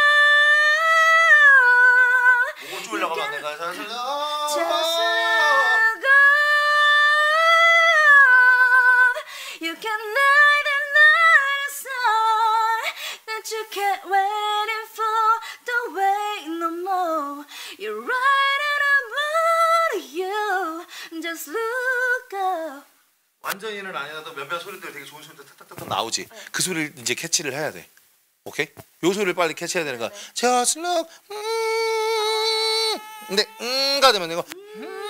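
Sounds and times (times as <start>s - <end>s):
woman singing unaccompanied: 0.0s - 3.9s, 4.5s - 22.9s.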